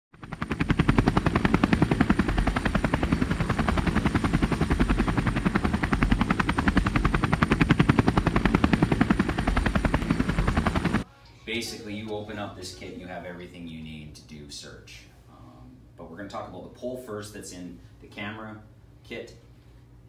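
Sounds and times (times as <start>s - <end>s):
fast rhythmic chopping pulse: 0.2s - 11.0s
steady low drone: 0.2s - 11.1s.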